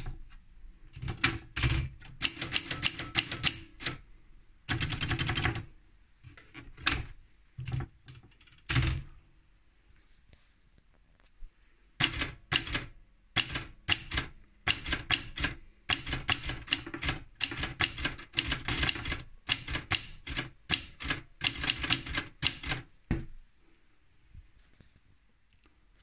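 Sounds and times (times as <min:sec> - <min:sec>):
typewriter keys striking: 0:01.0 - 0:04.0, 0:12.0 - 0:22.8.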